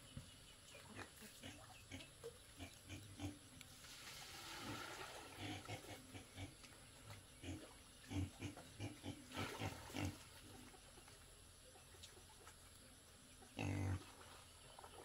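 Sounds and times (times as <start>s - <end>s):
pigs grunting: 0.9s - 3.5s, 4.6s - 6.7s, 7.4s - 10.3s, 13.5s - 14.2s.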